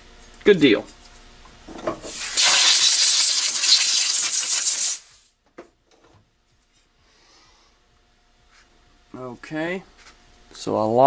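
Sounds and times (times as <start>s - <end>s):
pressurized gas hissing: 2.1s - 5.3s.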